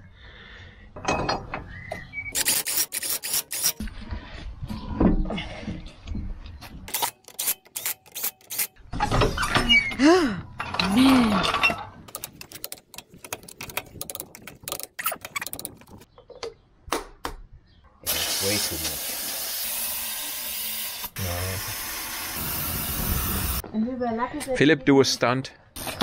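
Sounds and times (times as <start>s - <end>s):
ratchet clicking: 2.4s - 3.8s, 6.9s - 8.8s, 12.1s - 16.0s.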